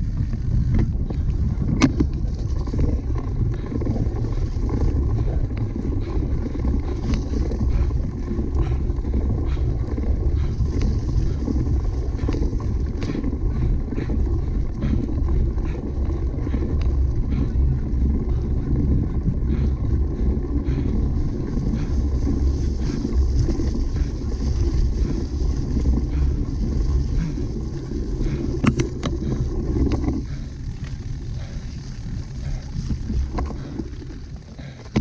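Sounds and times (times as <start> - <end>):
bike rumbling over rough ground: 0.0 - 35.0
wind buffeting microphone: 0.0 - 35.0.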